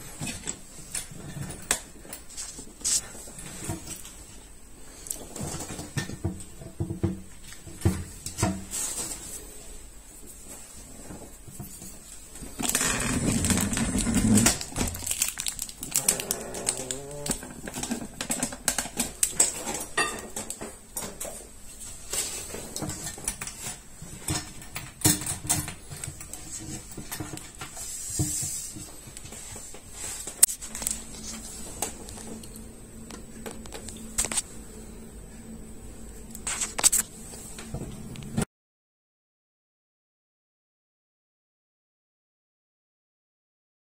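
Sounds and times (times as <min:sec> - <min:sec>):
plastic toilet seat rubbing: 0:12.4 - 0:15.1.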